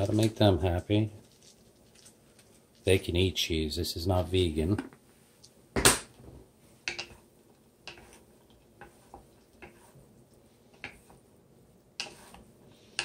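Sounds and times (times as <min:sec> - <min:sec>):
wooden spatulas scraping a pan: 0:06.8 - 0:11.3, 0:12.0 - 0:13.0.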